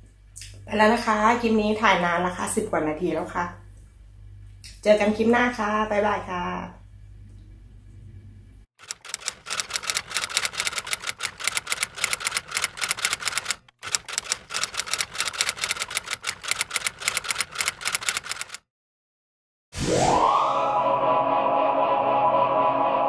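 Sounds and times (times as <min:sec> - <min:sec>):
typewriter keystroke clicks: 0:08.8 - 0:18.6.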